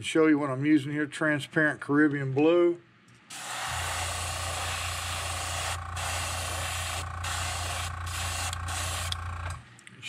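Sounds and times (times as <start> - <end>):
airbrush spraying hiss: 3.3 - 9.2
low motor hum: 3.8 - 9.6.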